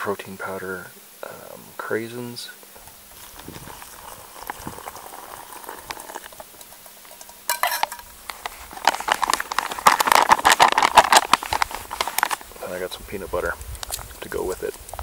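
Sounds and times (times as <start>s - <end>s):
stirring in a pot: 2.7s - 12.4s
oatmeal bubbling in a pot: 2.7s - 15.0s.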